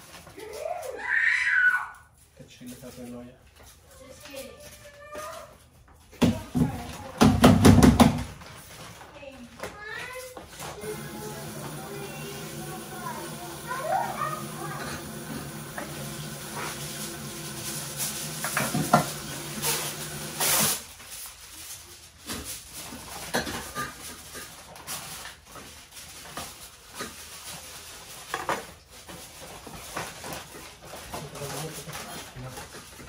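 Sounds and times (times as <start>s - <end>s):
water splashing in sink: 10.8s - 20.8s
dishes and utensils clinking: 14.4s - 16.8s, 23.0s - 24.7s.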